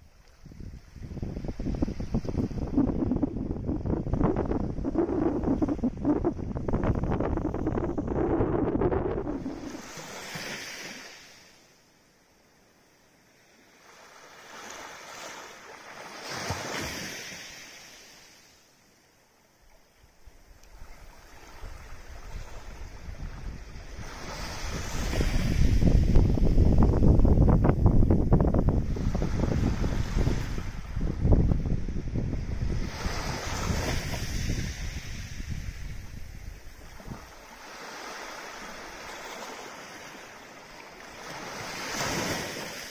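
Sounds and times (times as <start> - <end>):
wind rumbling on microphone: 0.0 - 11.2, 20.1 - 42.9
wave washing up beach: 1.1 - 11.5, 20.8 - 42.9.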